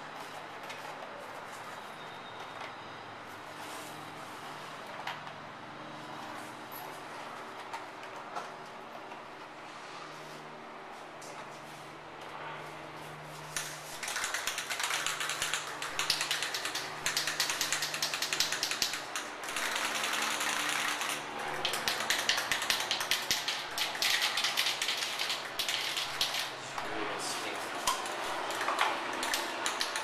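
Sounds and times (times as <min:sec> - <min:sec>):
spray can ball rattling: 0:13.5 - 0:26.8.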